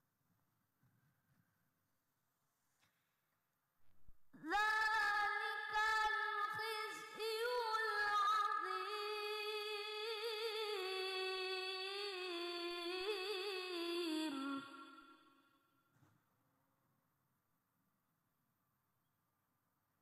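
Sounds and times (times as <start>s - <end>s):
boy reciting melodically: 4.4s - 14.9s.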